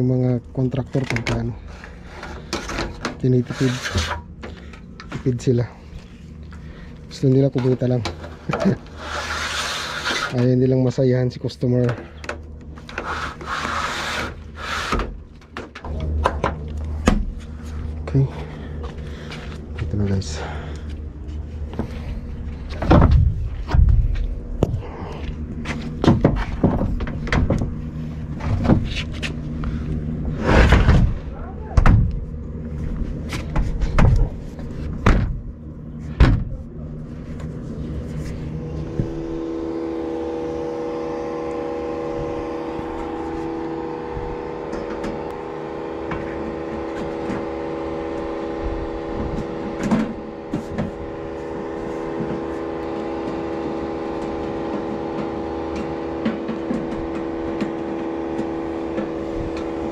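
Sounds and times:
machine humming: 0.0 - 59.9.

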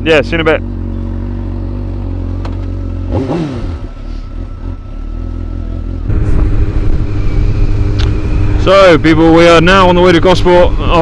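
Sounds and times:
motorcycle engine idling: 0.0 - 11.0
engine revving: 0.2 - 11.0.

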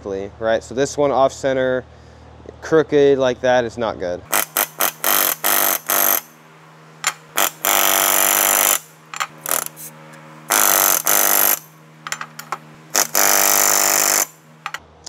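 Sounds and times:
rivet gun hammering sheet metal: 4.3 - 6.4, 7.0 - 9.9, 10.5 - 14.8.

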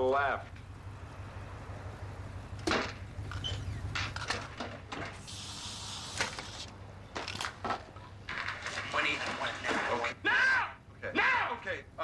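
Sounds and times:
low electrical hum: 0.0 - 12.0
rushing hiss: 5.2 - 6.6.

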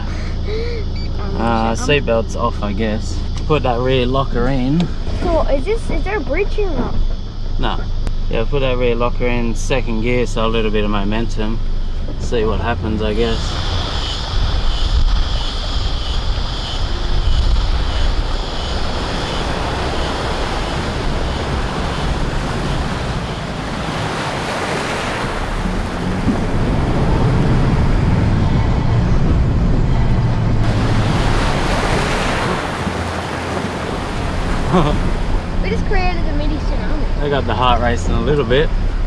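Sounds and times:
vehicle engine hum: 0.0 - 39.0
wind rumbling on microphone: 9.1 - 39.0
rushing river water: 16.8 - 29.1, 30.0 - 39.0.

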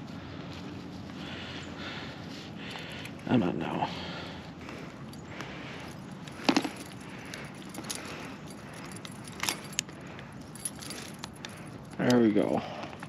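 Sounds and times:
metal fishing tackle clinking: 5.0 - 12.6.

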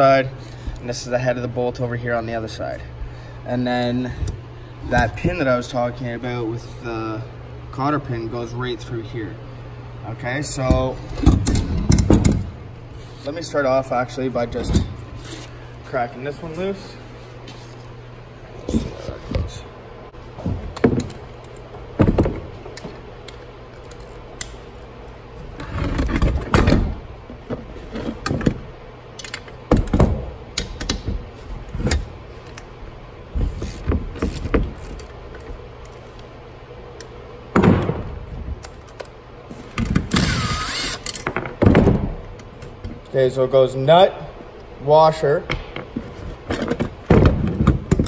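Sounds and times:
impact gun whirring: 39.9 - 41.3.

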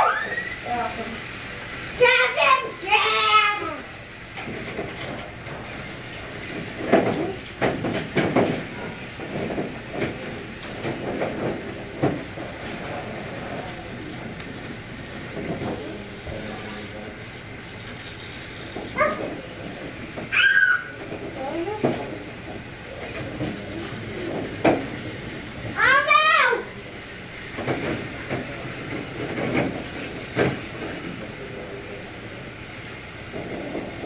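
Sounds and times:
toy trains running on plastic track: 0.0 - 34.0
children's voices: 1.9 - 4.0, 18.9 - 19.6, 20.3 - 22.2, 25.7 - 26.8.

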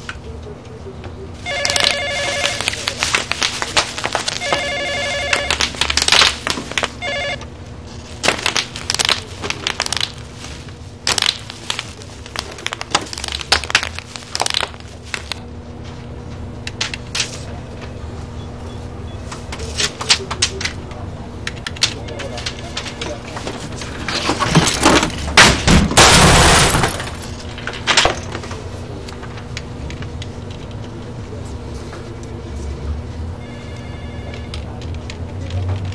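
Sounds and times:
telephone bell ringing: 1.4 - 2.7, 4.4 - 5.6, 7.0 - 7.5, 33.4 - 34.6
bubble wrap popping: 1.5 - 7.1, 7.9 - 15.5.

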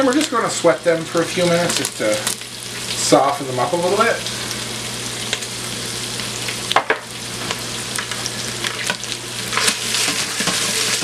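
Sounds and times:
vegetables sizzling in grease: 0.0 - 11.0
wooden spatula scraping a pot: 9.5 - 11.0.

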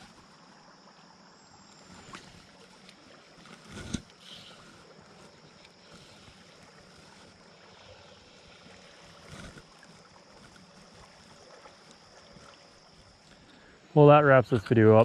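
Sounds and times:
creek running: 0.0 - 15.0.

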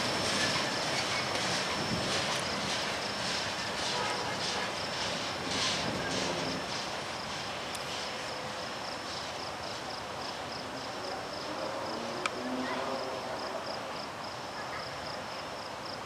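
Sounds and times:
freight train rolling: 0.0 - 16.0
insects chirping: 5.9 - 12.1.

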